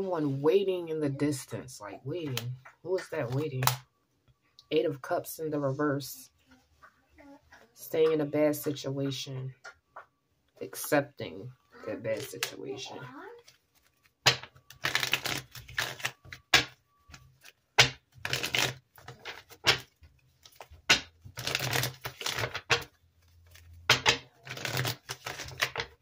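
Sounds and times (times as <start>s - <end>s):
cards being shuffled: 3.1s - 3.8s, 12.1s - 12.6s, 13.4s - 26.0s.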